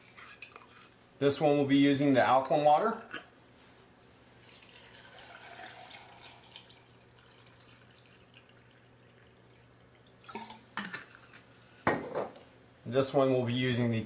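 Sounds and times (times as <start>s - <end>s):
water trickling into jar: 4.4s - 11.0s
water drips: 4.5s - 11.0s.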